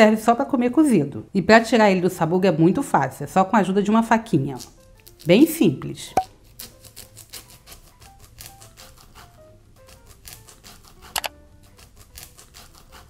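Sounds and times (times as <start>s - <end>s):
light background music: 0.0s - 13.0s
knife slicing corn kernels: 4.6s - 5.6s, 6.2s - 13.0s.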